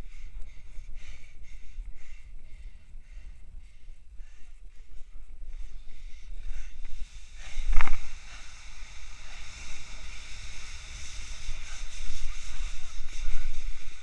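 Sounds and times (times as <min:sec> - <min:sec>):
wind rumbling on microphone: 0:00.0 - 0:14.0
sand hissing under sliding board: 0:07.0 - 0:14.0.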